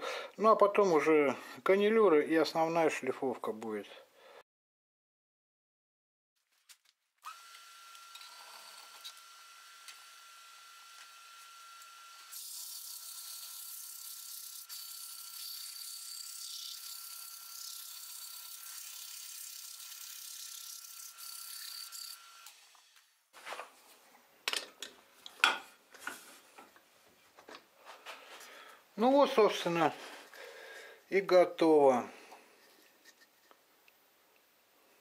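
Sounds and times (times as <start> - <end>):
lathe whine: 7.3 - 15.8.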